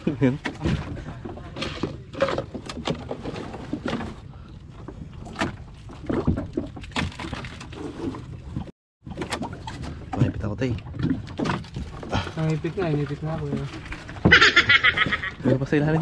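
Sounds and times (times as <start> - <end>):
water splashing and sloshing: 0.0 - 16.0.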